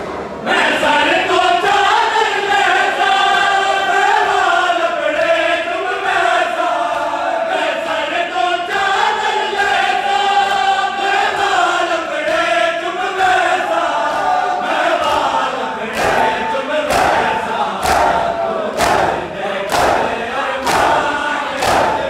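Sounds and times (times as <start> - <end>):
crowd of men chanting: 0.4 - 22.0
sharp slap: 14.0 - 22.0.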